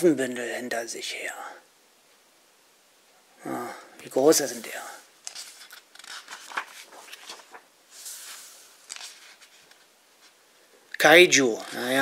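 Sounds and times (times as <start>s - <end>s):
book pages turning: 5.2s - 10.4s.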